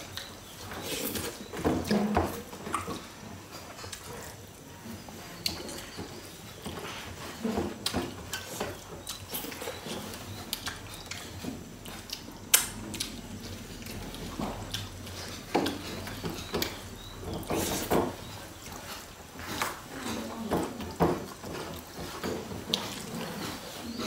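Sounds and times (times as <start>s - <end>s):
chewing and mouth smacks: 7.8s - 19.8s.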